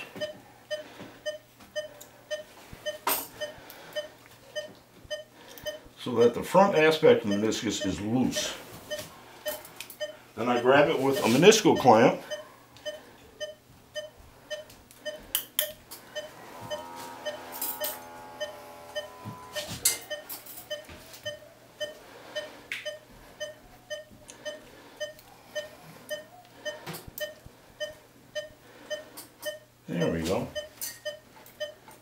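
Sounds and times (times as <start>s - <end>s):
patient monitor beeping: 0.0s - 31.9s
surgical instruments clicking: 14.0s - 16.3s
steady buzzing tone: 16.2s - 20.0s.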